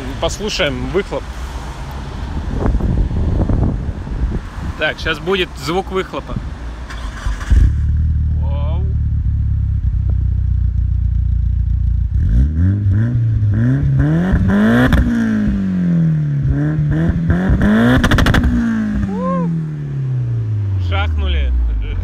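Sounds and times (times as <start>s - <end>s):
turbo car engine revving: 6.8s - 21.3s
exhaust crackle: 6.8s - 22.0s.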